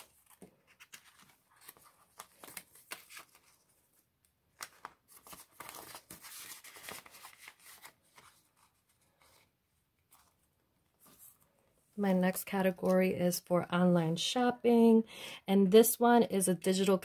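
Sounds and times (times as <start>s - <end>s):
plastic envelope crinkling: 0.0s - 9.3s
paper banknotes rustling: 0.0s - 10.4s.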